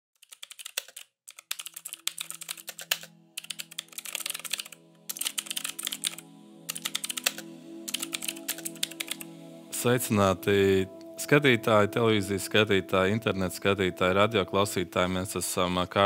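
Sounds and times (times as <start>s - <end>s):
keyboard typing: 0.2s - 9.3s
low held musical chord: 3.1s - 16.0s.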